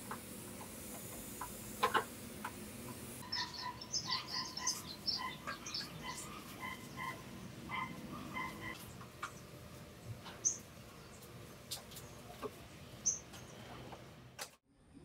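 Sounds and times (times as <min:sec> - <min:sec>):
small animals chirping: 0:03.2 - 0:08.9.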